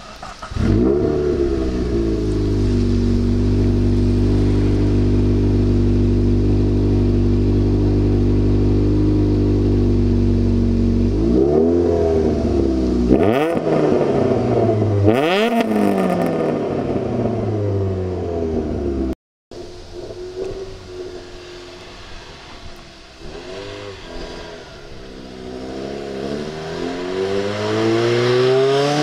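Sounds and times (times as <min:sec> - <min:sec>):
car engine idling and revving: 0:00.0 - 0:29.0.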